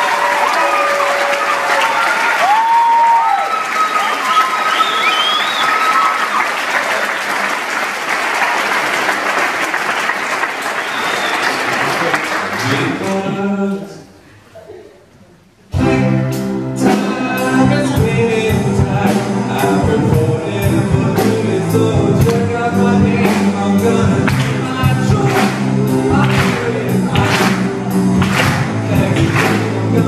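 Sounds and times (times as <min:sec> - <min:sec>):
music with steady beat: 0:15.7 - 0:30.0.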